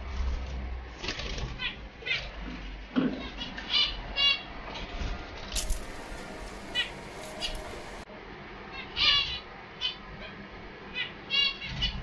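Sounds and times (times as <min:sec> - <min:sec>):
parakeets chirping: 0:05.6 - 0:08.0.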